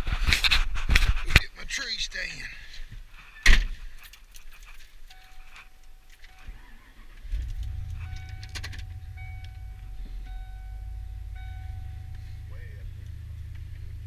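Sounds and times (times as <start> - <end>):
keys clicking in ignition: 4.0 - 10.6
dashboard warning chime: 5.1 - 13.0
truck engine running: 6.4 - 14.0.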